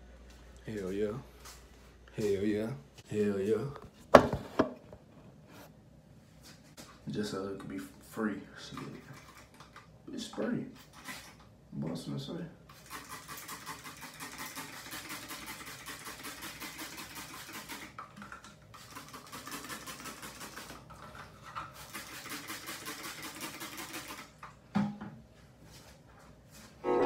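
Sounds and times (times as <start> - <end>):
spray bottle spraying: 12.8 - 18.0, 21.8 - 24.3.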